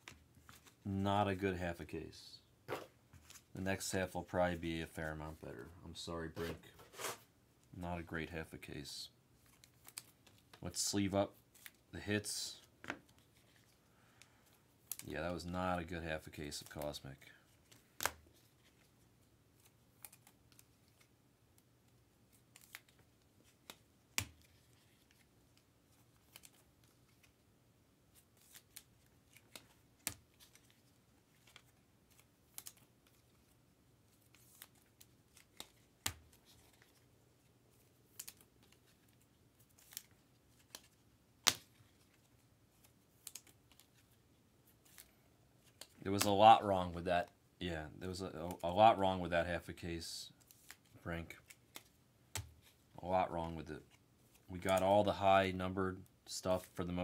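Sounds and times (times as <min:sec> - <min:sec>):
cards rustling: 0:00.0 - 0:01.4, 0:09.4 - 0:21.2, 0:21.8 - 0:27.4, 0:28.1 - 0:47.1, 0:50.4 - 0:55.5, 0:56.4 - 0:57.0
cards clicking on plastic sleeves: 0:09.4 - 0:10.7, 0:14.8 - 0:15.1, 0:16.5 - 0:18.9, 0:21.8 - 0:27.4, 0:28.1 - 0:37.1, 0:37.7 - 0:46.6, 0:50.4 - 0:52.8.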